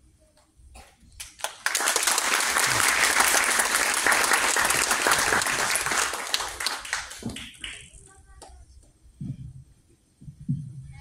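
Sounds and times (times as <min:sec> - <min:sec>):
audience applauding: 0:01.2 - 0:07.9.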